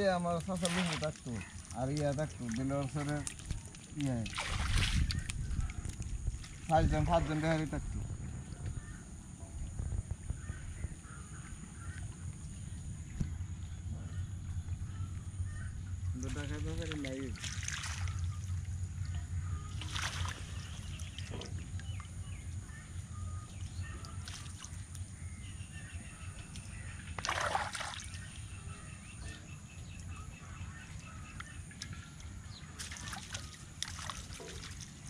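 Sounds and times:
water sloshing and splashing: 0.0 - 35.0
fish thrashing in water: 0.4 - 7.0, 16.2 - 22.1, 27.2 - 28.2.

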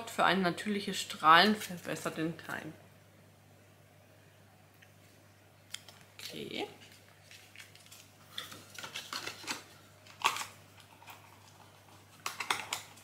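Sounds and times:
packaging rustling: 6.2 - 13.0.

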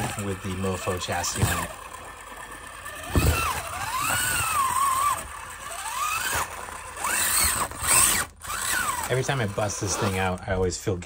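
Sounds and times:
rc car motor whining: 0.0 - 11.0
thump: 3.1 - 4.4.

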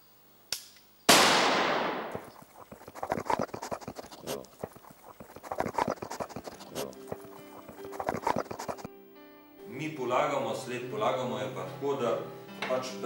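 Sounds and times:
gunshot: 1.1 - 2.2.

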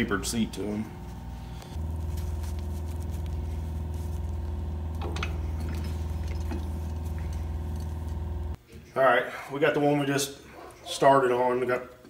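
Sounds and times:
power tool motor hum: 0.9 - 8.6.

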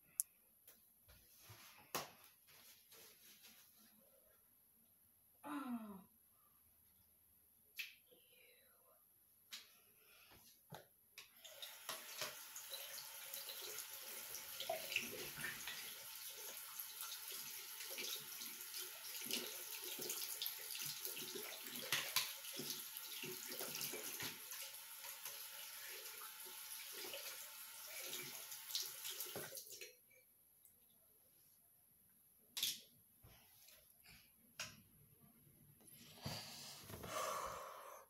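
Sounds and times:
tap water running into sink: 11.3 - 29.9.

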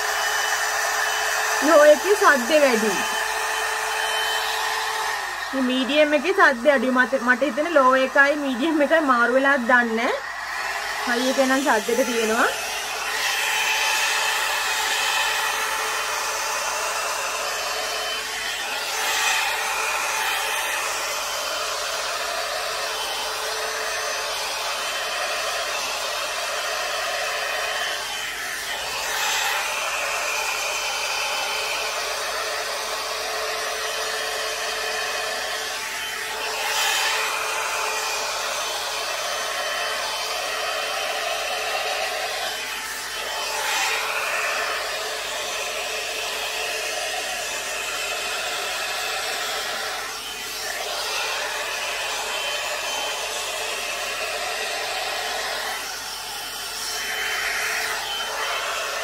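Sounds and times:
hair dryer blowing air: 0.0 - 59.0.

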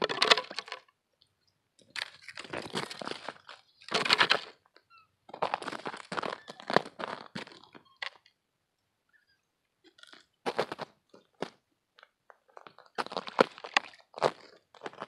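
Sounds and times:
boots crunching on snowy ice: 5.3 - 7.7, 10.5 - 11.6, 13.0 - 15.0.

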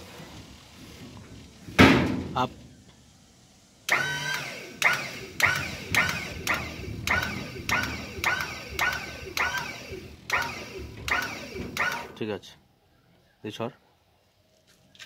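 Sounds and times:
hydraulic bed chirping pulse: 3.9 - 12.2.

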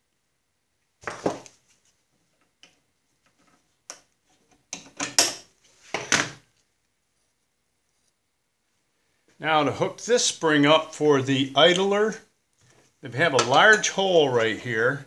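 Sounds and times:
metal parts knocking and clacking: 4.7 - 5.4.

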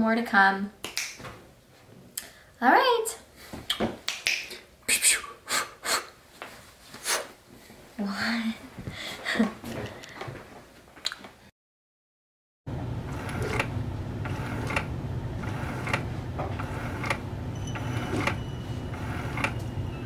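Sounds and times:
coffee maker humming: 12.7 - 20.0.

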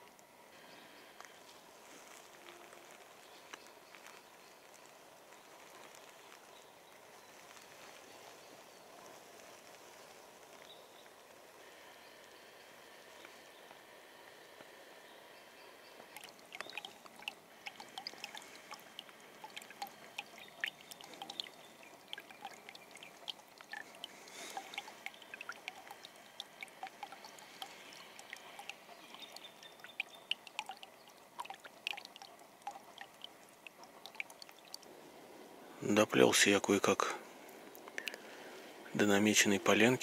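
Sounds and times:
brook trickling: 0.0 - 13.7, 14.8 - 40.0
water drips and splashes: 15.9 - 34.9, 37.7 - 38.3.

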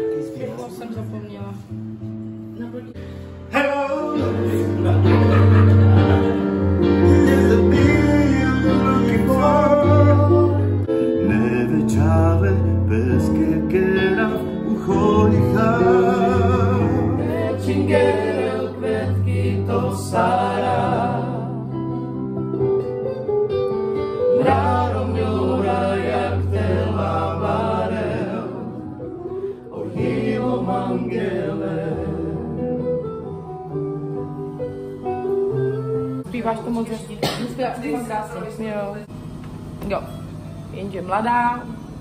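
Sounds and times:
person singing with vibrato: 3.3 - 21.8.

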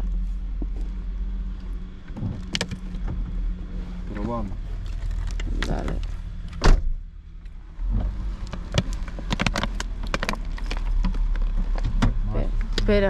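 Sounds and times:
low steady hum: 0.0 - 13.0
sharp thump: 6.6 - 7.0
clicks and knocks in a car: 7.9 - 13.0.

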